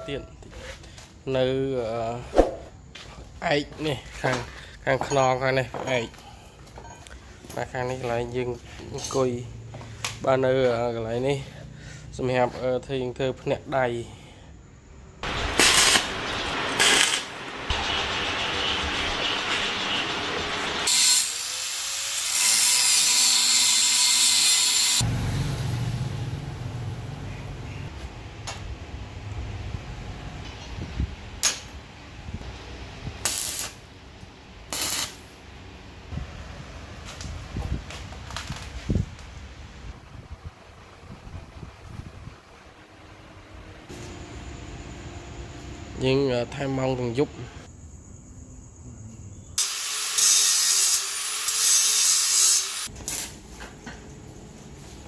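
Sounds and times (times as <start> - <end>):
welding arc crackle: 15.2 - 25.0, 33.2 - 33.9, 34.7 - 35.4, 49.6 - 53.4
angle grinder grinding steel: 15.3 - 25.1, 49.6 - 52.9.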